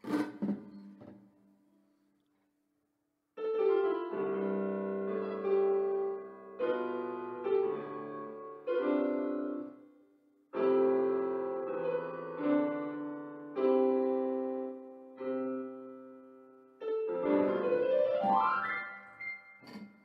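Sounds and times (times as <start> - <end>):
keyboard playing piano chords: 3.4 - 20.0.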